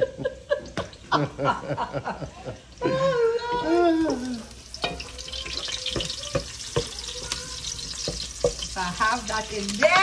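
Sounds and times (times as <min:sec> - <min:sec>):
food frying in oil: 0:00.0 - 0:10.0
wooden spoon knocking pot: 0:05.9 - 0:07.0, 0:07.9 - 0:08.9.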